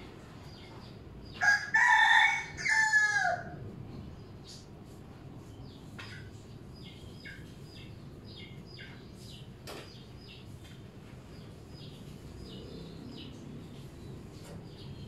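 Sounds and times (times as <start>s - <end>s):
low background noise: 0.0s - 15.0s
small birds chirping: 4.1s - 15.0s.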